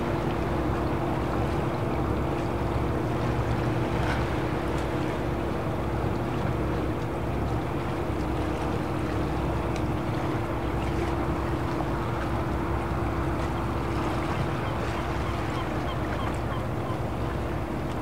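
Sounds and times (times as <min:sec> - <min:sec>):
boat engine droning: 0:00.0 - 0:18.0
water noise: 0:00.0 - 0:18.0.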